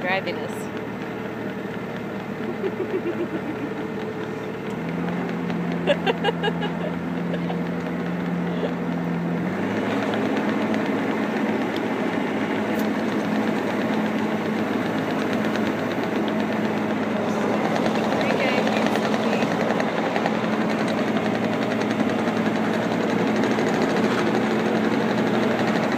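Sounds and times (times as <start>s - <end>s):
diesel engine running: 0.0s - 25.9s
child laughing: 2.4s - 4.6s, 5.7s - 8.9s.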